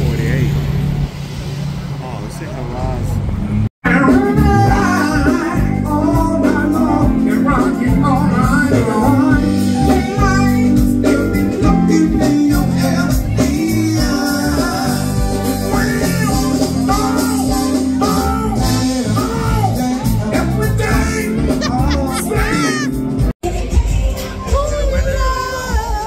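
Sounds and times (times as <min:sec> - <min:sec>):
man singing into microphone: 0:03.8 - 0:23.0
live rock band playing: 0:03.8 - 0:26.0.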